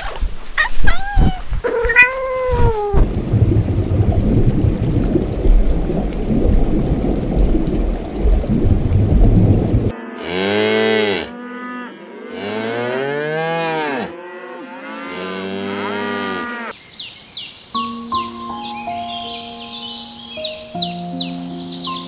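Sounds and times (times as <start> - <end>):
bubbling aquarium water: 1.8 - 9.9
cattle mooing: 10.0 - 16.7
bird chirps: 16.8 - 22.0.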